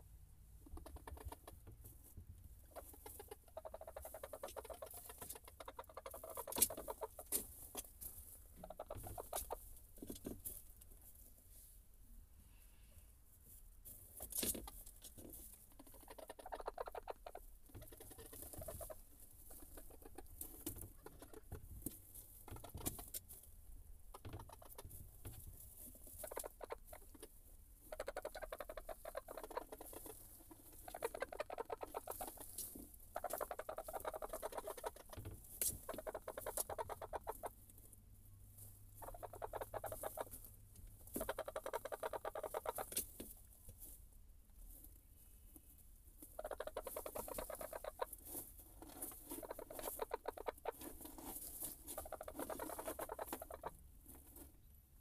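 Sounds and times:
chickens clucking: 0.6 - 1.8, 2.6 - 9.7, 14.4 - 21.7, 22.4 - 23.2, 24.1 - 25.0, 26.1 - 27.3, 27.9 - 37.6, 38.9 - 40.5, 41.1 - 43.1, 46.3 - 48.2, 49.0 - 50.9, 51.8 - 53.8
pecking and scratching in wood shavings: 0.6 - 11.8, 13.4 - 54.7.

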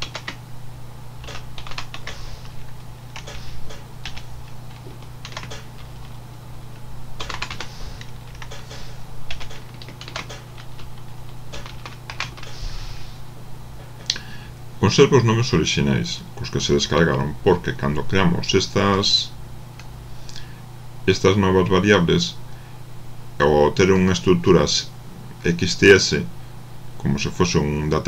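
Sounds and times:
computer keyboard typing: 0.0 - 0.4, 1.2 - 2.6, 3.2 - 3.4, 4.0 - 6.2, 7.2 - 12.6
steady low hum: 0.0 - 28.0.

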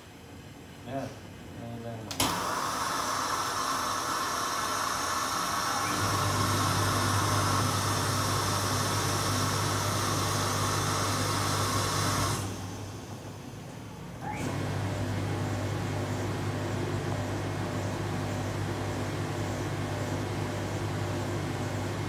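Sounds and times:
air blowing hiss: 2.3 - 13.2.

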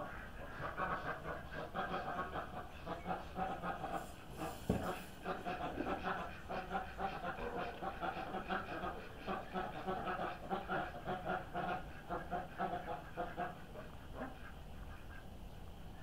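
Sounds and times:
ducks quacking softly: 0.0 - 16.0.

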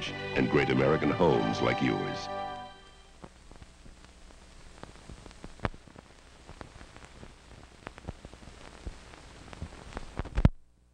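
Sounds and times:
film soundtrack hiss: 0.0 - 10.9
film clicks and pops: 3.2 - 10.7.

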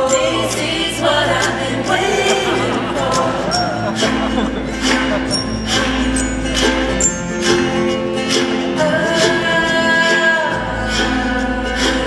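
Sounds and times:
voices singing along: 0.0 - 7.3
acoustic guitar: 0.0 - 12.0
upright bass: 0.0 - 12.0.

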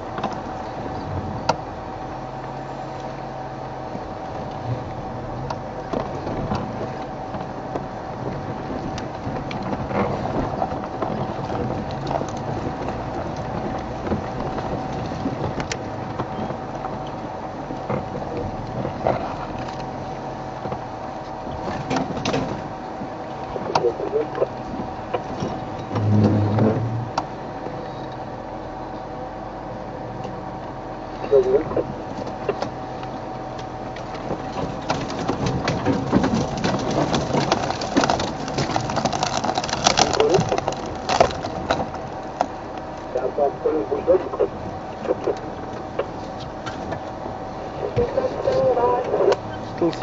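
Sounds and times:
vehicle engine rumble and whine: 0.0 - 50.0
vehicle rattling over rough ground: 0.0 - 50.0.

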